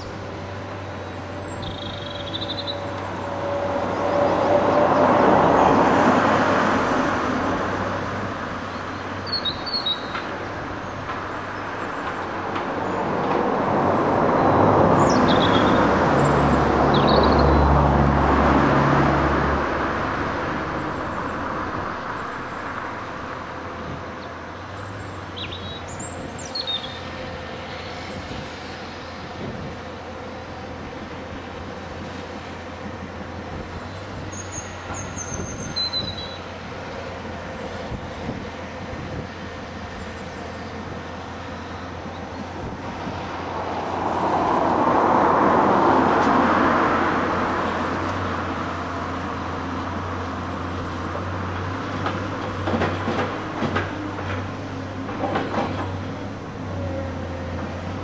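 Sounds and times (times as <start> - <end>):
birds chirping: 0.0 - 5.8, 8.6 - 13.4, 14.0 - 17.8, 21.0 - 29.3, 33.8 - 37.9
diesel engines idling: 0.0 - 35.6, 36.2 - 58.0.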